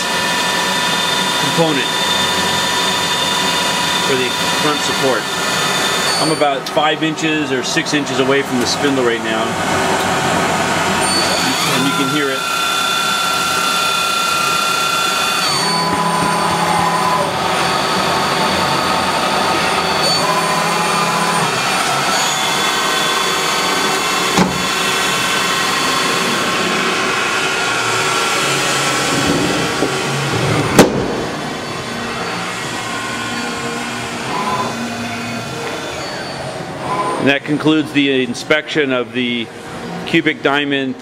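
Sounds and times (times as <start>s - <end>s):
lathe spindle whine: 0.0s - 40.1s
sharp knock: 30.7s - 31.3s.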